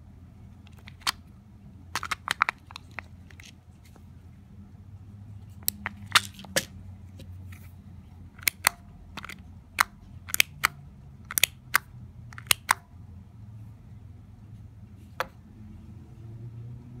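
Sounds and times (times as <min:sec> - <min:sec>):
plastic pill bottle cap clicking: 0:00.7 - 0:01.2, 0:02.0 - 0:03.6, 0:05.6 - 0:06.7, 0:08.4 - 0:12.8.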